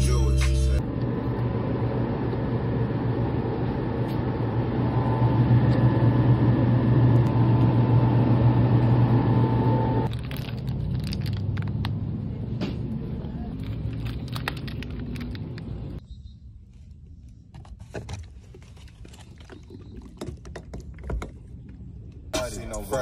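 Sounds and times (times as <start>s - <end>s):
low hum: 0.0s - 17.5s.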